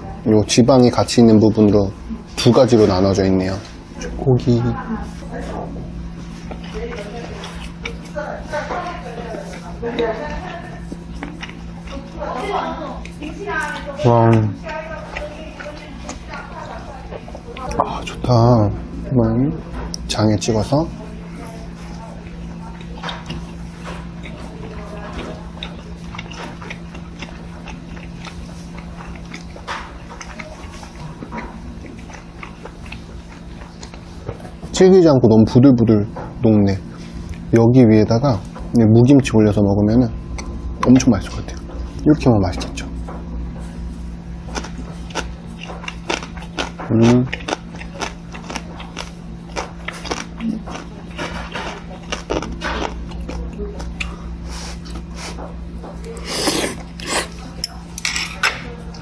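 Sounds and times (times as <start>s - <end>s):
wet chewing mouth smacks: 6.4s - 8.2s, 10.7s - 12.1s, 21.8s - 34.7s, 40.3s - 57.4s.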